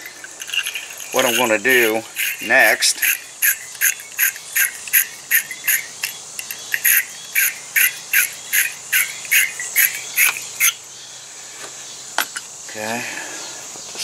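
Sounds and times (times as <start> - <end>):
wire brush scraping metal: 0.0 - 10.4.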